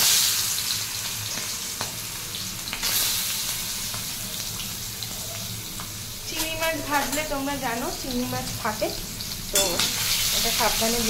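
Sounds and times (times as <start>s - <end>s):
prawns sizzling in hot oil: 0.0s - 11.0s.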